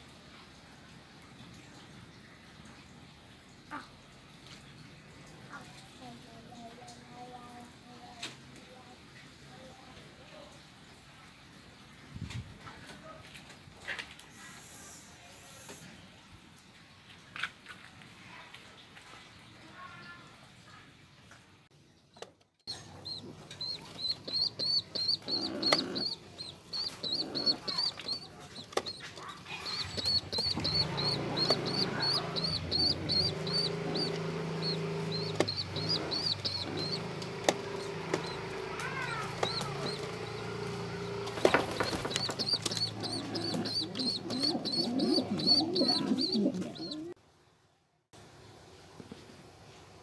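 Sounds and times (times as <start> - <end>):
pigeon squab high-pitched peeps: 22.7 - 40.2, 41.4 - 47.2
wings fluttering: 22.7 - 47.1.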